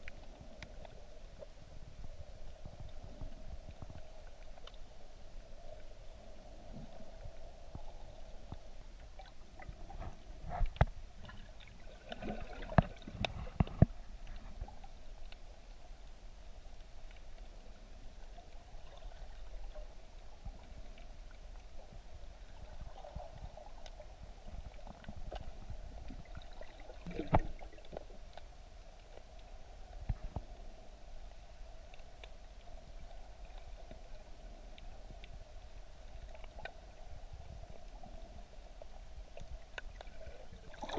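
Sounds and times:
sharp underwater knocks and clicks: 9.2s - 11.5s, 12.1s - 14.7s, 24.6s - 28.1s
underwater wash of water: 11.0s - 15.3s, 16.8s - 40.9s.

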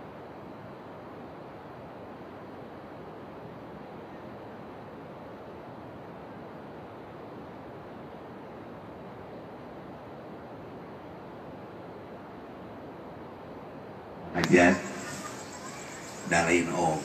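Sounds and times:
steady rushing noise: 8.7s - 17.0s.

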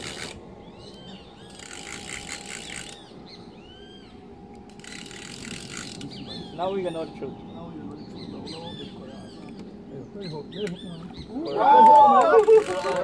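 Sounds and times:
fishing reel clicker ratcheting: 0.0s - 0.4s, 1.5s - 3.1s, 4.5s - 6.1s, 12.4s - 13.0s
birds whistling: 0.0s - 13.0s.

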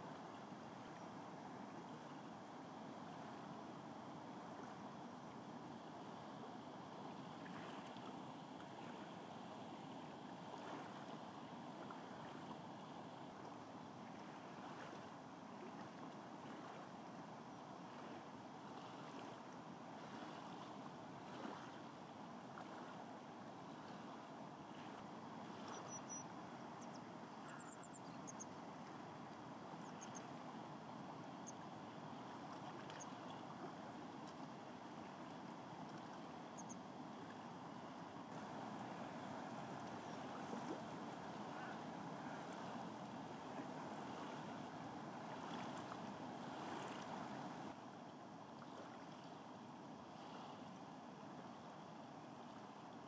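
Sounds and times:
faint high-pitched chirps: 25.7s - 28.6s, 36.6s - 36.8s.

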